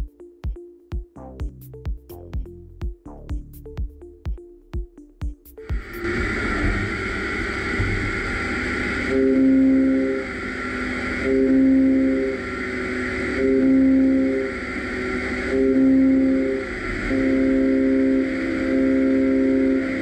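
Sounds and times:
machine hum: 0:05.5 - 0:20.0
lathe milling tone: 0:05.6 - 0:20.0.

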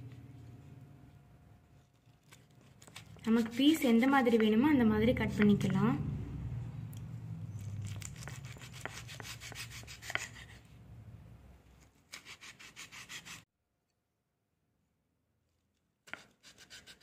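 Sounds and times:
knife sawing fruit on cutting board: 0:08.1 - 0:10.6, 0:12.1 - 0:13.4, 0:16.1 - 0:17.0.

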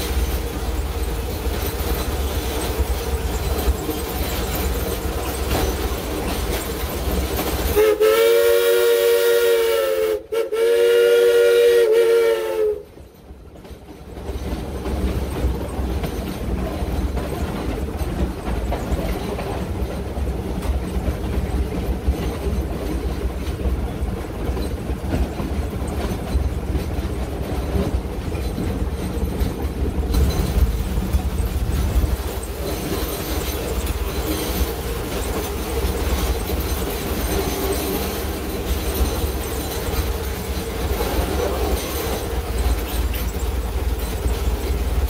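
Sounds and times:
locomotive rumble and rail clatter: 0:00.0 - 0:45.0
steam locomotive whistle: 0:07.7 - 0:13.0.

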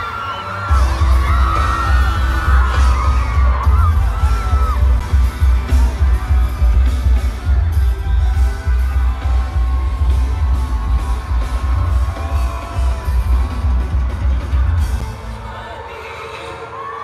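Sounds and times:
crowd noise: 0:00.0 - 0:17.0
pulsing bass beat: 0:00.7 - 0:15.2
person singing: 0:15.0 - 0:17.0.

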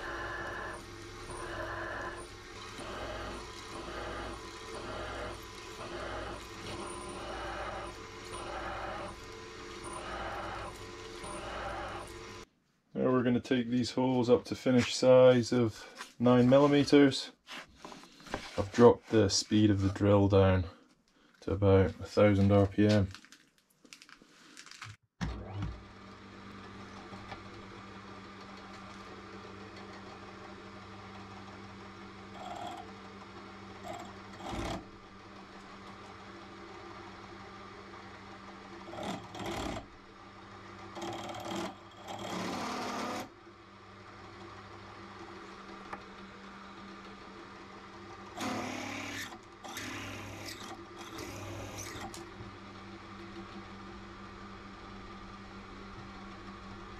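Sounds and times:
drill bit cutting steel: 0:00.0 - 0:12.4, 0:48.4 - 0:52.2
drill press humming: 0:00.0 - 0:12.5, 0:25.2 - 0:56.9.

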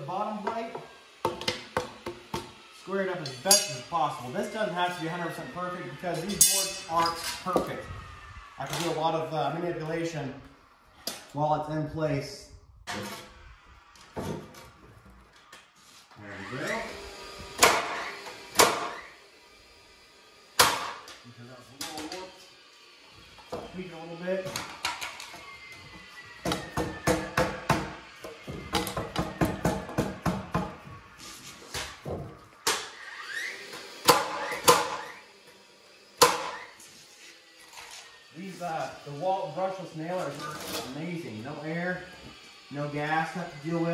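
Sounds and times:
nailer spinning up whine: 0:00.0 - 0:11.4, 0:12.8 - 0:43.9
nail gun shots: 0:17.6 - 0:19.0, 0:20.6 - 0:21.0, 0:34.0 - 0:35.1.

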